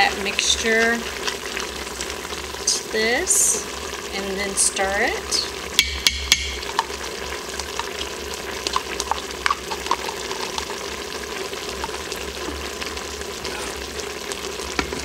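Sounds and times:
sauce simmering and sizzling in a pot: 0.0 - 15.0
small bubbling pops: 0.4 - 2.2, 5.7 - 13.0.

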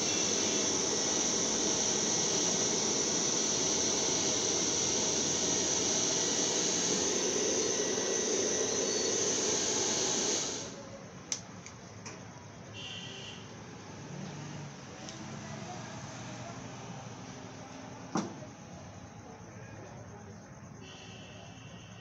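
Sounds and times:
hair dryer blowing: 0.0 - 10.8.

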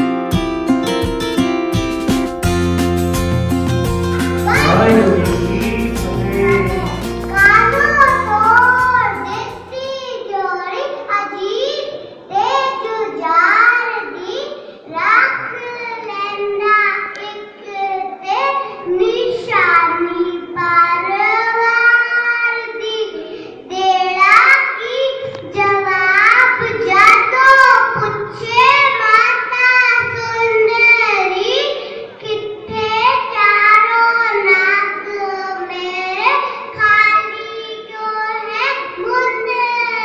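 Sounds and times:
girl chanting in sung style: 4.5 - 9.4.

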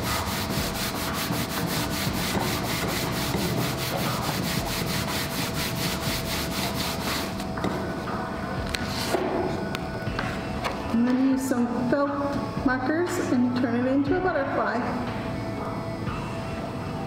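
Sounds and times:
hands rubbing paper: 0.0 - 7.5.

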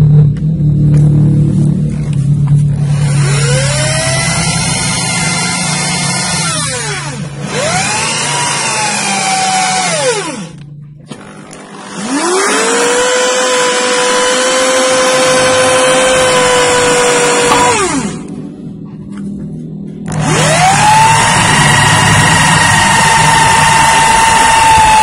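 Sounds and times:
electric drill motor: 2.7 - 18.4, 20.0 - 25.0.

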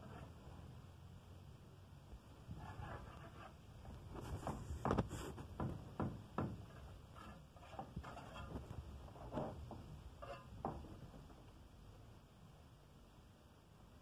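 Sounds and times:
trowel scraping and tapping brick: 2.6 - 3.6, 6.4 - 10.9.

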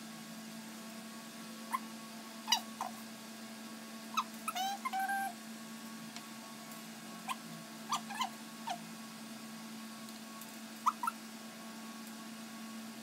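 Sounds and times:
small dog whimpering: 2.5 - 3.0, 4.1 - 5.4, 7.3 - 8.8, 10.8 - 11.2.

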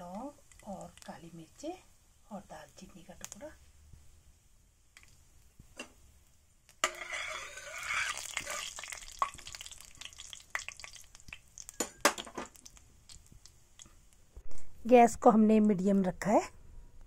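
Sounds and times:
spices sizzling in hot oil: 0.0 - 14.3
steel spoon clinking against pan: 6.8 - 8.2.

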